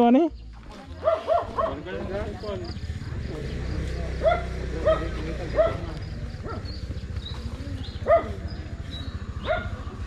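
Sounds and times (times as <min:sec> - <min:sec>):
dog yipping: 0:01.0 - 0:01.8, 0:04.2 - 0:05.8, 0:08.0 - 0:08.4, 0:09.4 - 0:09.8.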